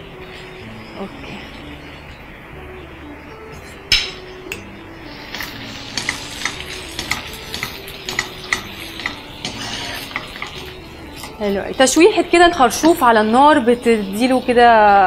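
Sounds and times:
food sizzling in a frying pan: 0:03.3 - 0:15.0
wooden spoon scraping a pan: 0:05.3 - 0:11.9.

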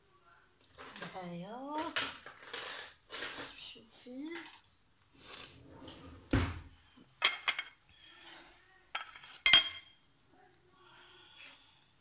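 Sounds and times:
cutlery clinking on ceramic dishes: 0:07.2 - 0:07.8, 0:08.9 - 0:10.0.

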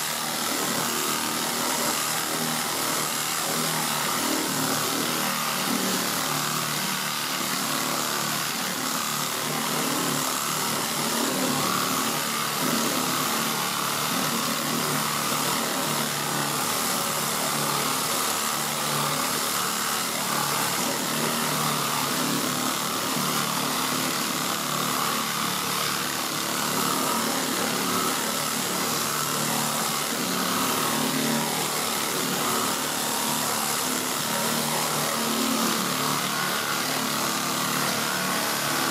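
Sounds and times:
pneumatic air sander running: 0:00.0 - 0:38.9.

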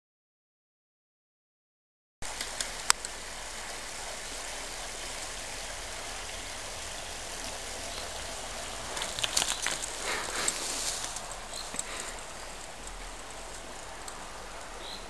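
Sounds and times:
outdoor hiss: 0:02.2 - 0:15.0
bicycle rattling on wooden bridge: 0:06.6 - 0:15.0.

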